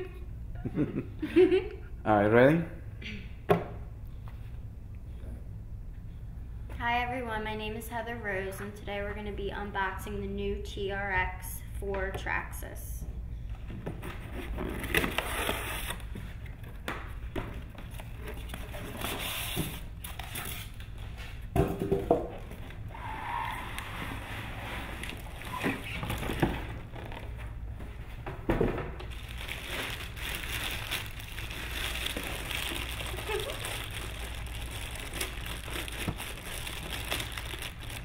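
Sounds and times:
steady low hum: 0:00.0 - 0:38.0
cardboard and plastic bag rustling: 0:23.9 - 0:27.6, 0:29.0 - 0:38.0.

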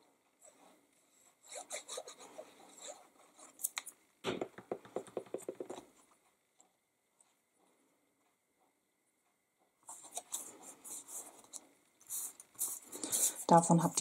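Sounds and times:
rubbing strokes on paper: 0:09.9 - 0:14.0.

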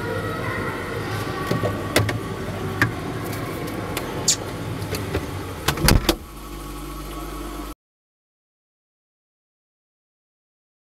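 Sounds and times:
low fridge hum: 0:00.0 - 0:07.8.

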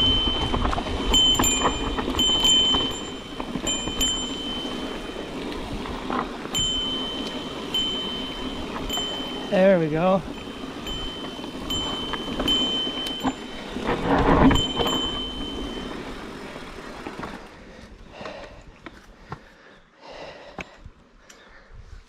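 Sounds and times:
bicycle bell ringing: 0:00.0 - 0:16.9
heavy bike jolt: 0:00.0 - 0:17.6
bike rattling over dirt trail: 0:00.0 - 0:19.6.

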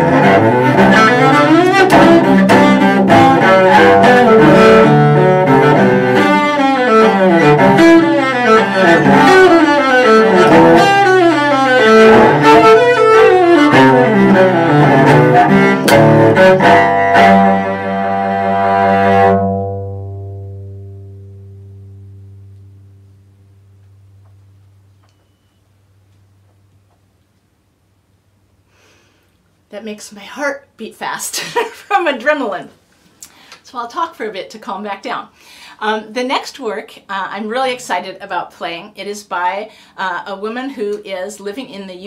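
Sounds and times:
solo cello bowed: 0:00.0 - 0:25.6.

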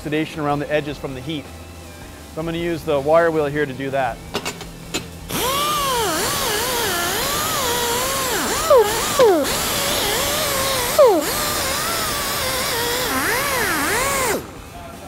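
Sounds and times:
die grinder whine: 0:05.3 - 0:14.6.

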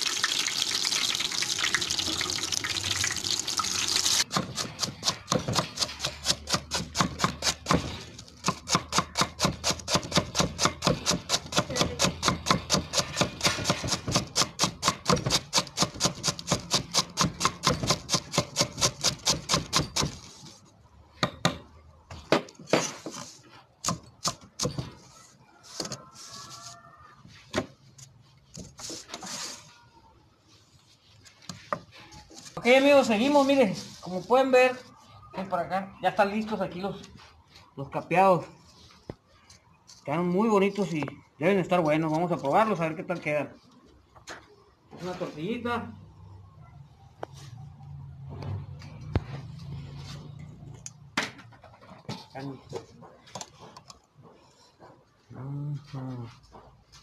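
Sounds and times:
frying oil sizzling: 0:00.0 - 0:04.3
knife chopping on wooden block: 0:04.3 - 0:20.2.

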